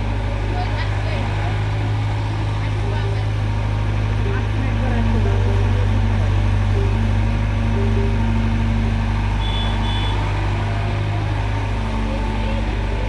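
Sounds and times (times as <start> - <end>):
mini excavator working: 0.0 - 13.0
tractor engine idling: 0.0 - 13.0
short high beeps: 9.4 - 10.2.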